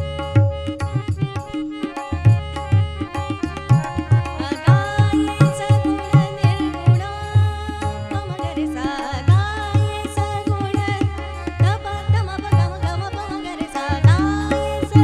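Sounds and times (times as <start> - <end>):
harmonium held notes: 0.0 - 15.0
woman singing: 3.4 - 15.0.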